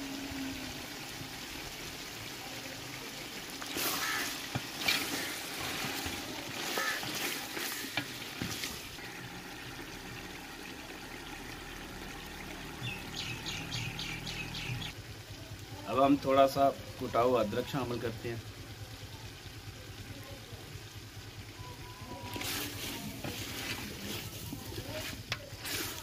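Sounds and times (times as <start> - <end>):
chicken sizzling in oil: 0.0 - 20.1, 20.8 - 26.0
spatula scraping pot: 3.7 - 8.8, 22.3 - 26.0.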